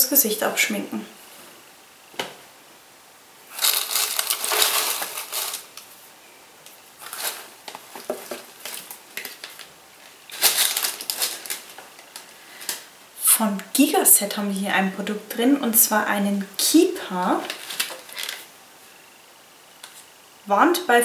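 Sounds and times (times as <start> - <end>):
packaging rustling and crackling: 3.5 - 5.9, 7.0 - 13.0, 17.3 - 18.5.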